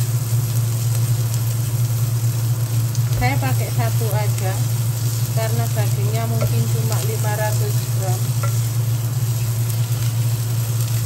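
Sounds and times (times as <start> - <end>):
spice paste sizzling in oil: 0.0 - 11.0
steady low hum: 0.0 - 11.0
wooden spoon stirring in pot: 3.0 - 11.0.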